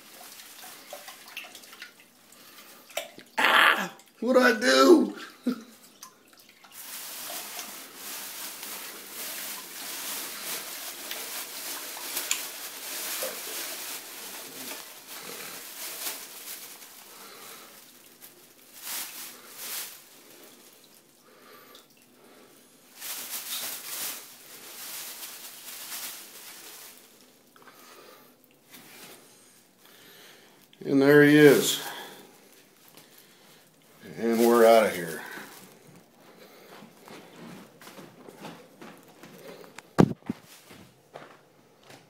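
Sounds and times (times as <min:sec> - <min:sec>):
plastic bag rustling: 0:00.0 - 0:02.0, 0:06.6 - 0:41.5
rat splashing in water: 0:00.0 - 0:04.2.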